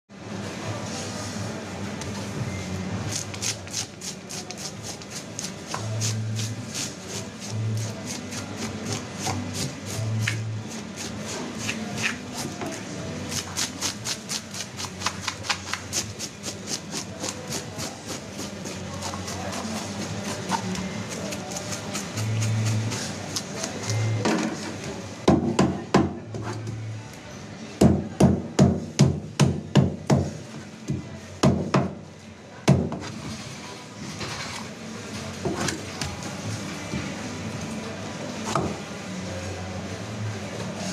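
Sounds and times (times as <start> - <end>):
knife scraping fish scales: 3.1 - 12.6.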